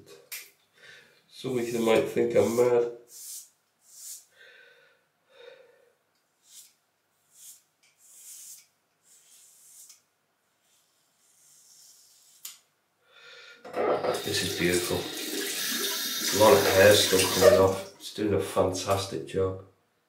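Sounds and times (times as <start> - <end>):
razor scraping scalp: 6.4 - 10.0, 10.6 - 12.6.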